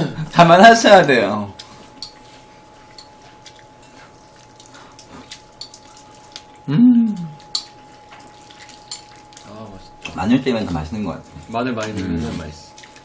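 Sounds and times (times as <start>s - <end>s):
chopsticks clicking on plates: 1.6s - 2.2s, 7.2s - 10.2s
wet mouth eating sounds: 1.6s - 10.1s
person humming mm: 6.7s - 7.4s.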